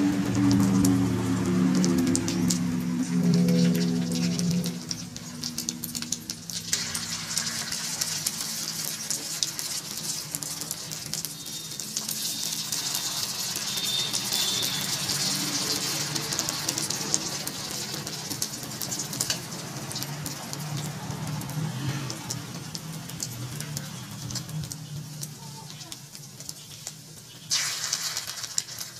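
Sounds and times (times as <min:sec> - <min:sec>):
egg sizzling in hot oil: 0:00.0 - 0:28.9
metal spoon in a wok: 0:06.4 - 0:20.8.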